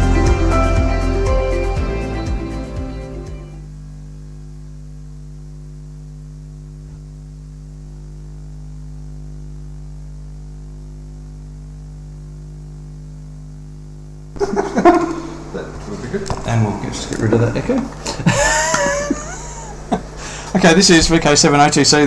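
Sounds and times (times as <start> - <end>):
electrical mains hum: 0.0 - 22.0.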